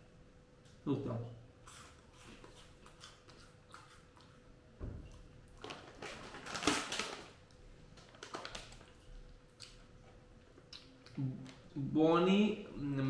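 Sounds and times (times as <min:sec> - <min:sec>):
soft thump: 0:04.8 - 0:05.2
plastic snack packet crinkling: 0:05.6 - 0:07.4, 0:08.0 - 0:09.0.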